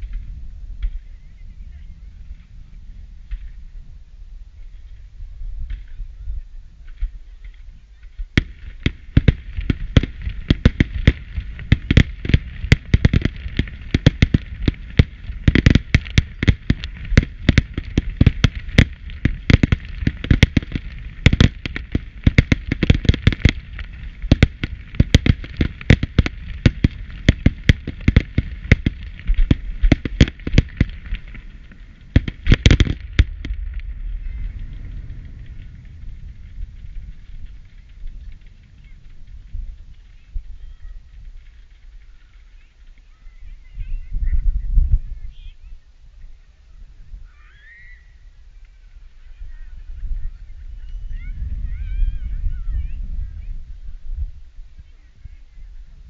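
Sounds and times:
continuous hiss: 0.0 - 56.0
firework bangs: 8.2 - 42.0.

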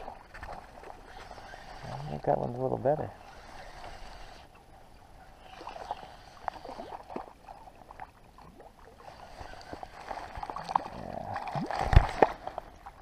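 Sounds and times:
fishing reel clicking: 0.9 - 4.6, 9.0 - 10.6.

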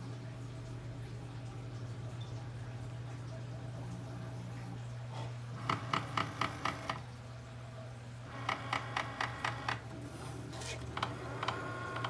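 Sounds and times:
cutting machine humming: 10.5 - 12.0.

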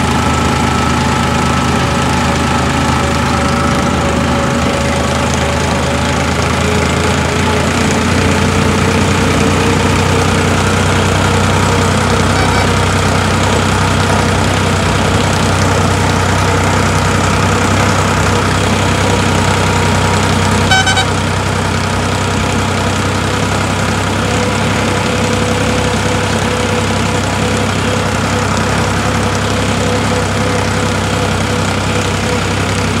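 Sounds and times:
tractor diesel engine running: 0.0 - 33.0
short high beep: 12.3 - 12.8, 20.7 - 21.1.

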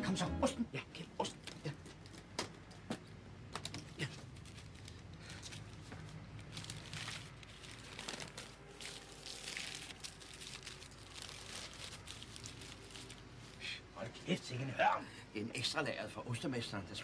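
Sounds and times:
paper and cellophane crinkling: 3.6 - 13.6.

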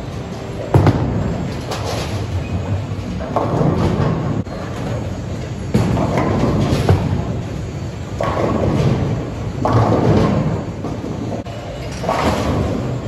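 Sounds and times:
bowling balls rolling: 0.0 - 13.0
bowling pins crashing: 3.2 - 4.7, 5.7 - 7.5, 8.1 - 13.0.

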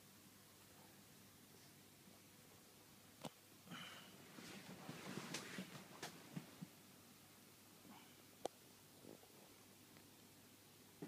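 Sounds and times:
dog breathing and rustling sheet: 4.3 - 5.9.

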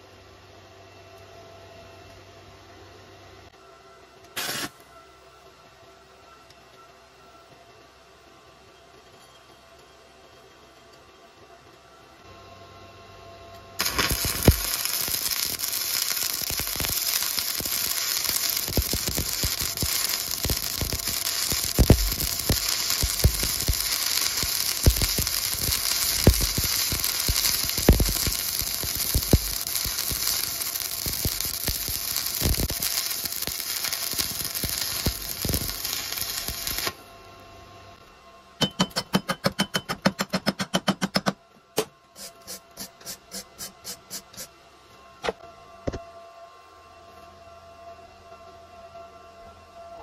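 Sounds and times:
welding arc crackling and sizzling: 4.4 - 4.8, 13.8 - 37.1.

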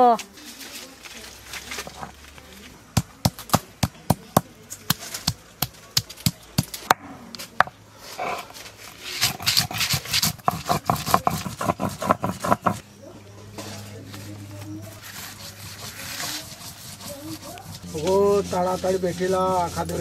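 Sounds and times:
stone pestle striking seeds: 2.9 - 7.0, 9.2 - 12.8
stone grinding on stone: 8.1 - 12.8, 13.6 - 20.0.

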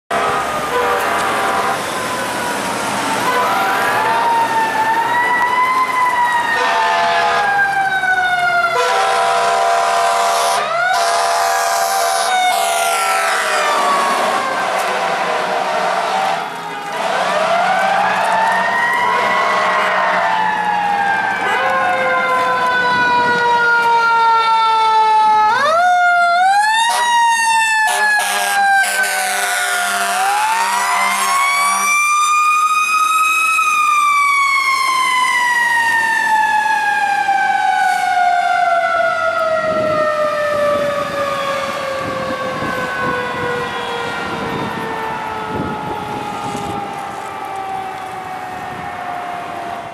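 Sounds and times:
air horn blasts: 0.1 - 1.9, 6.6 - 7.5, 8.7 - 18.1, 19.1 - 20.2, 27.8 - 32.0
mechanical siren wailing: 0.1 - 49.9.

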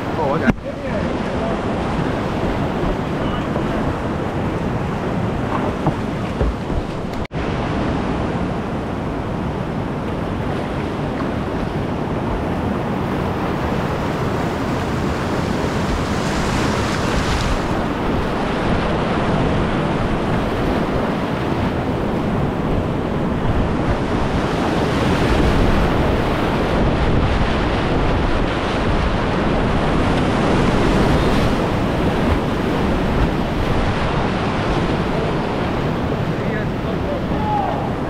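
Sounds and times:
river rapids rushing: 0.0 - 8.0, 28.1 - 38.0.

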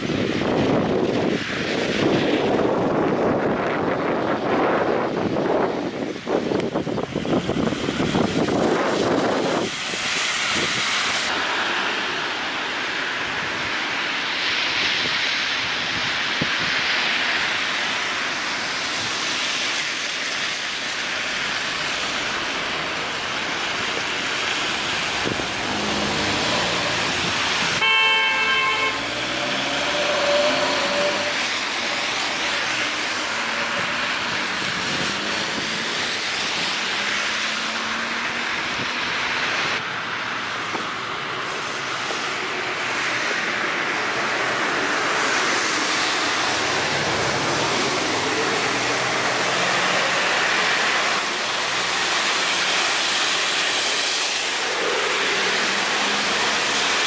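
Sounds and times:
tyres hissing on wet road: 0.0 - 57.0
car horn: 27.8 - 31.5.

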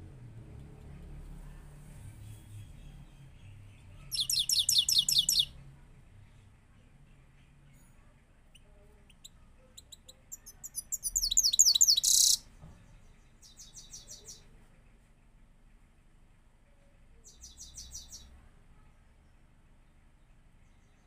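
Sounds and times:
finch singing: 2.8 - 5.6, 8.5 - 12.4, 13.4 - 14.5, 17.3 - 18.3.

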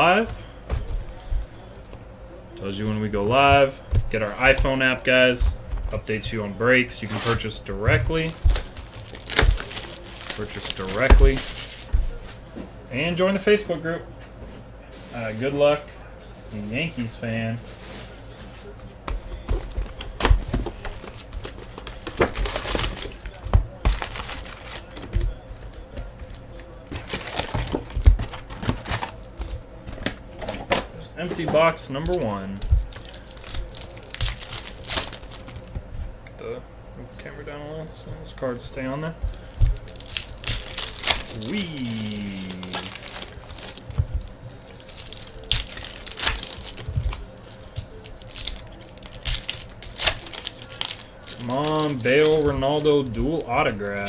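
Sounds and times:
foil card packs rustling: 2.7 - 12.5, 17.2 - 35.8, 39.1 - 54.0.

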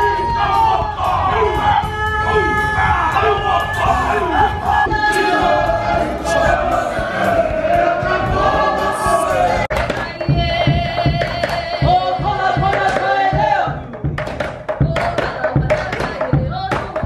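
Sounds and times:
group singing: 0.0 - 17.0
woman chanting: 8.8 - 11.9.

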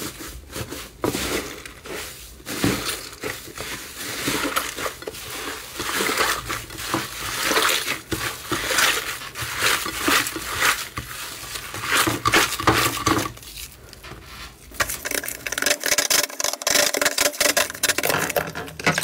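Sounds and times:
slime crackling and popping: 14.7 - 19.0.

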